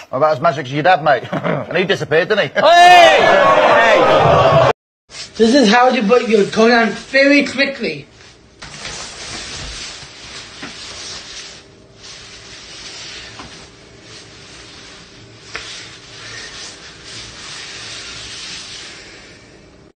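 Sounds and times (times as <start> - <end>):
nylon jacket rustling: 8.2 - 19.2.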